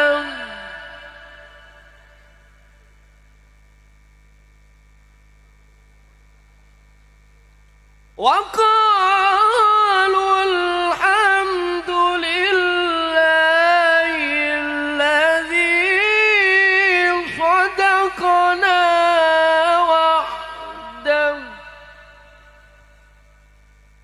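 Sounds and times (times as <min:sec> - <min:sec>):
man reciting melodically over loudspeaker: 0:00.0 - 0:02.8, 0:08.2 - 0:23.5.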